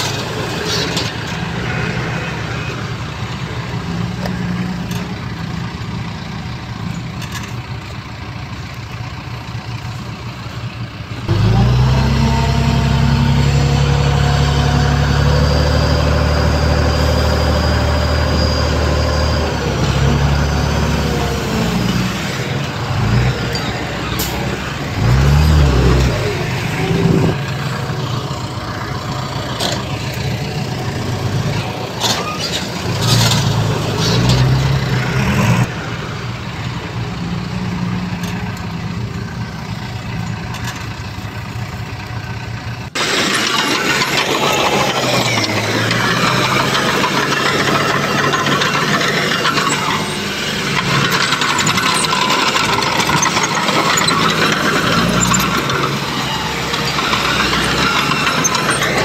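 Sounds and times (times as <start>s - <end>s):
heavy machinery diesel engines: 0.0s - 59.0s
engine revving: 11.2s - 39.4s, 43.0s - 59.0s.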